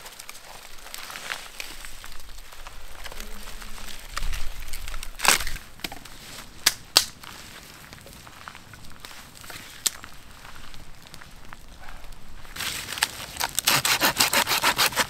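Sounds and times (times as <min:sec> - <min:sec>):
bark and twigs rustling: 0:00.0 - 0:15.0
twigs snapping: 0:00.0 - 0:15.0.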